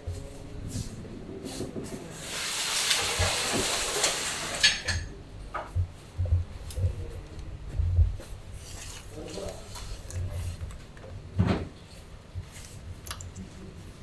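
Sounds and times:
steady hiss: 1.4s - 4.9s.

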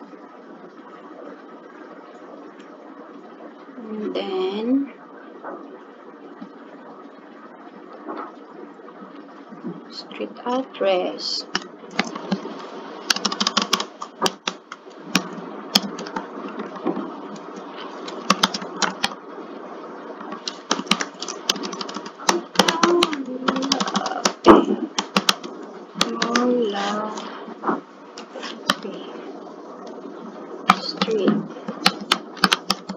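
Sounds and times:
keyboard typing clicks: 13.1s - 16.8s, 18.0s - 19.2s, 20.3s - 24.4s, 25.0s - 26.5s, 30.7s - 32.9s.

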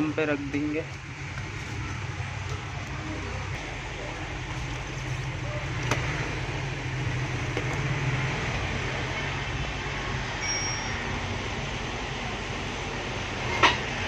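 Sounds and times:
low mechanical hum with hiss: 0.0s - 14.0s
short high-pitched tone: 10.4s - 11.1s.

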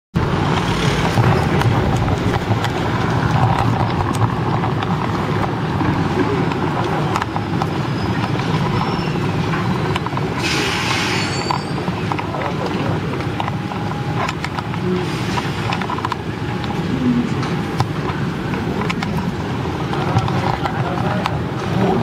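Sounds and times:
rumble of passing vehicles: 0.2s - 22.0s
sharp clicks and knocks: 0.3s - 16.8s.

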